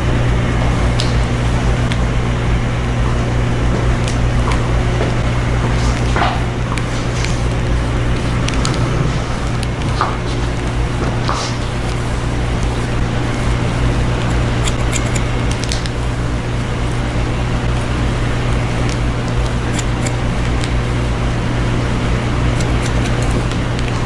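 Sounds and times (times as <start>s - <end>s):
background hum and hiss: 0.0s - 24.0s
hair-cutting shears snipping: 0.9s - 2.1s, 4.0s - 16.0s, 18.8s - 20.8s, 22.5s - 24.0s.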